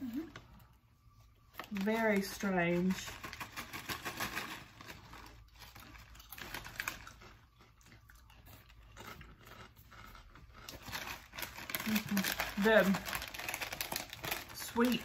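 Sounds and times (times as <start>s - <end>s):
chewing crunchy chips: 3.0s - 15.0s.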